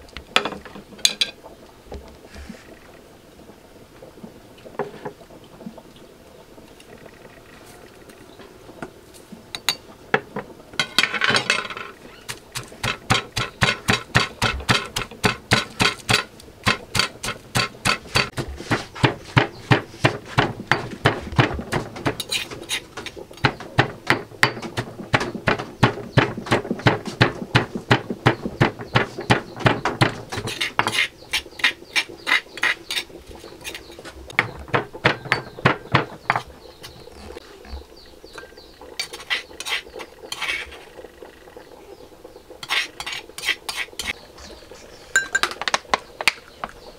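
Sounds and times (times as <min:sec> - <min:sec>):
stone pestle pounding in mortar: 0:12.6 - 0:31.7, 0:34.4 - 0:36.4.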